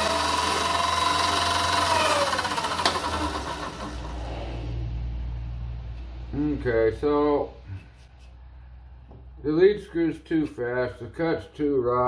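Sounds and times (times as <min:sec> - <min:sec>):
lathe motor whining: 0:00.0 - 0:04.4
low motor hum: 0:00.0 - 0:06.6.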